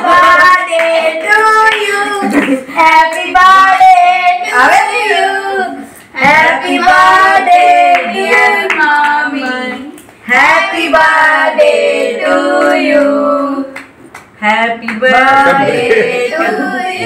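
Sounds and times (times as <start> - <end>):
children and woman singing: 0.0 - 13.7, 14.4 - 17.0
hands clapping along: 13.7 - 15.1.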